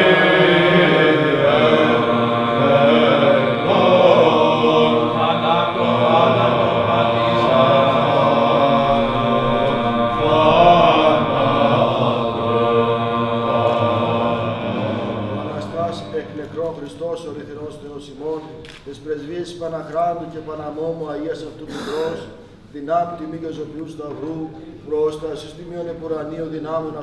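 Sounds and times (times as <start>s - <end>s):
men's voices chanting: 0.0s - 16.6s
low held drone note: 0.0s - 16.9s.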